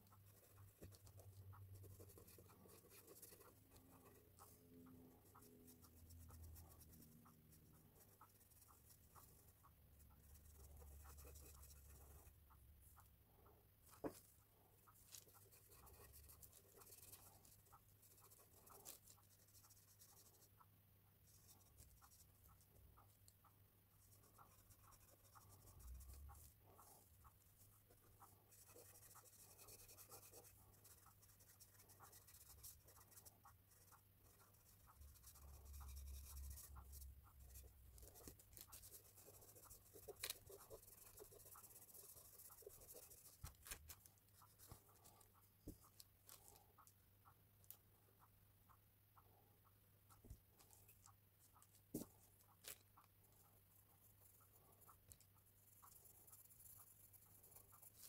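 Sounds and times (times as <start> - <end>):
pencil scratching on paper: 0.0 - 13.1, 13.8 - 23.2, 24.0 - 46.9, 50.0 - 58.0
low steady hum: 0.0 - 58.0
fingers rubbing paper: 24.1 - 46.0.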